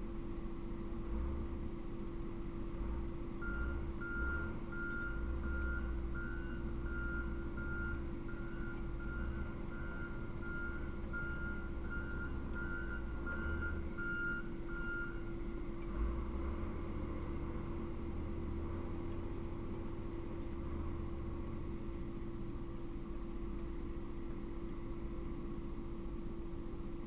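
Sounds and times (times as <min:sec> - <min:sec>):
low hum and rumble: 0:00.0 - 0:27.0
reversing alarm beeping: 0:03.4 - 0:15.4.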